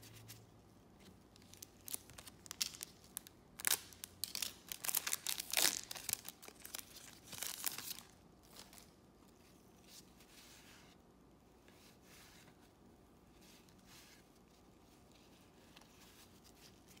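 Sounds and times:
plastic wrapper crinkling: 1.4 - 8.9.

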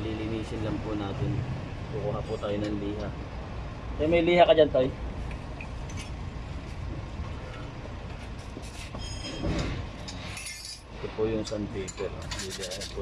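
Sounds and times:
metal scraping and clinks: 8.7 - 13.0
high metallic squeak: 8.8 - 9.7, 10.3 - 10.9.

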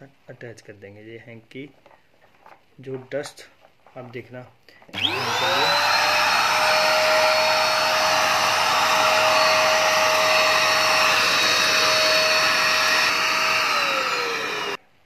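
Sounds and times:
handheld vacuum cleaner whine: 5.0 - 14.8.

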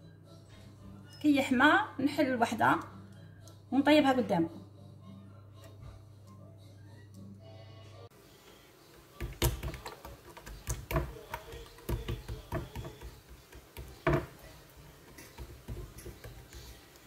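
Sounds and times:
hands slapping dough on board: 9.2 - 14.4.

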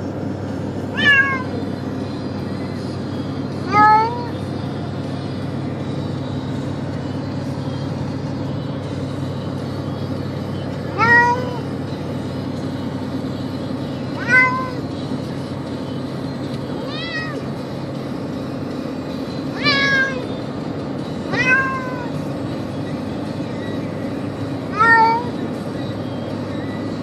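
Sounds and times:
car engine and road hum: 0.0 - 27.0
cat meowing: 0.9 - 1.6, 3.7 - 4.4, 10.9 - 11.7, 14.2 - 14.8, 16.8 - 17.5, 19.5 - 20.2, 21.3 - 22.1, 24.7 - 25.4.

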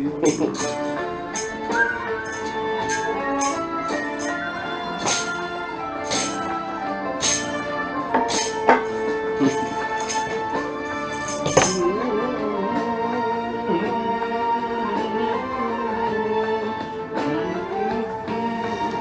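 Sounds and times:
tambourine shaken and struck: 0.1 - 12.0.

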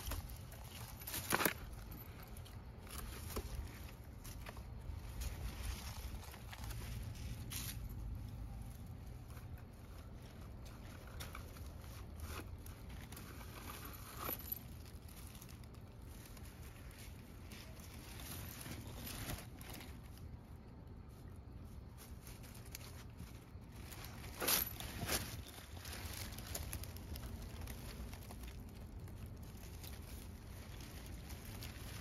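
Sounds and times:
rustling of dry leaves: 0.0 - 32.0.

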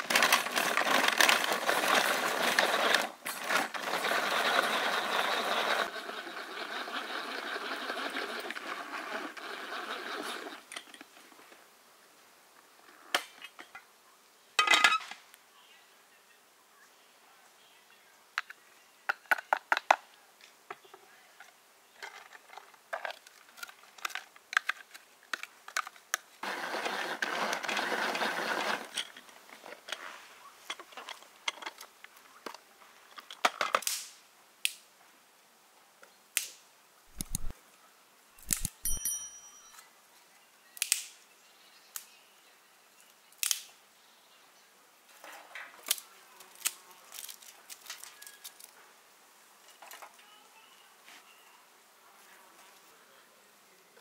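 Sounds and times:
plastic container handling: 37.1 - 37.5
dry twigs snapping: 40.8 - 41.1.

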